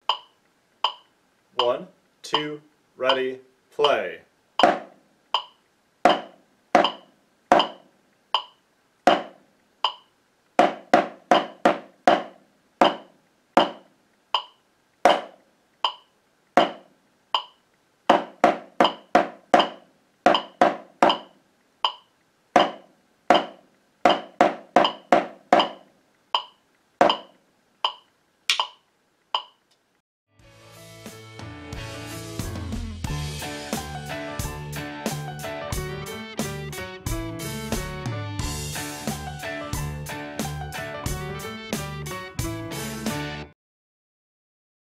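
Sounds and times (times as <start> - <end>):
drumsticks on practice pad: 0.0 - 4.0, 4.6 - 29.8
metronome clicking: 0.0 - 4.0, 5.3 - 5.6, 8.4 - 8.6, 9.8 - 10.1, 14.4 - 14.6, 15.8 - 16.1, 17.4 - 17.6, 18.8 - 23.5, 24.8 - 25.8, 26.4 - 28.8, 29.4 - 29.6.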